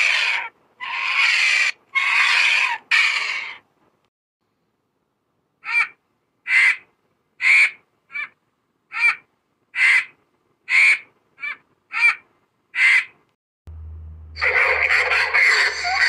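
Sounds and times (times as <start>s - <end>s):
vulture calling: 0.0s - 3.7s, 5.6s - 13.2s.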